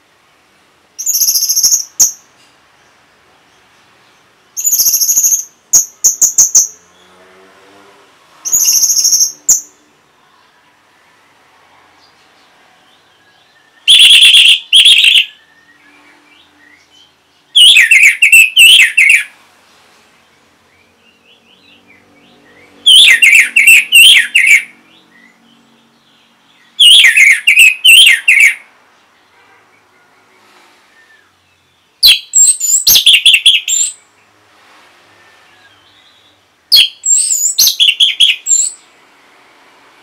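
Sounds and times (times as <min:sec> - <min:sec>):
faint bird chirping: 0:01.0 - 0:39.2
thrush singing whistled notes: 0:04.6 - 0:06.9, 0:08.5 - 0:09.8, 0:13.1 - 0:19.3, 0:20.7 - 0:28.6, 0:30.9 - 0:34.1, 0:35.1 - 0:38.9.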